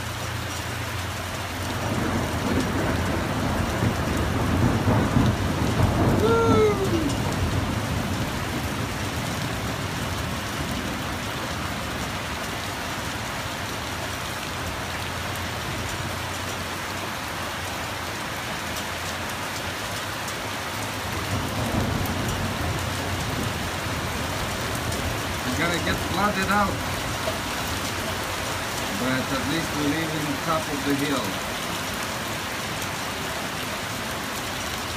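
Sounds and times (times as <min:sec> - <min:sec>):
heavy rain pouring: 0:00.0 - 0:34.9
low thunder rumble: 0:01.7 - 0:12.1, 0:21.1 - 0:29.5.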